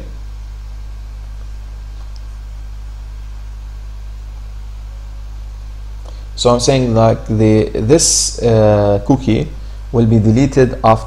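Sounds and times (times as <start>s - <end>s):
low electrical hum: 0.0s - 11.0s
even hiss: 1.3s - 11.0s.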